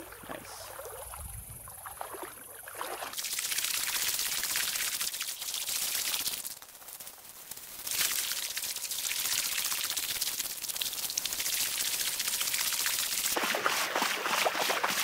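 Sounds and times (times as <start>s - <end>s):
water splashing around wading legs: 0.0s - 6.1s, 13.3s - 15.0s.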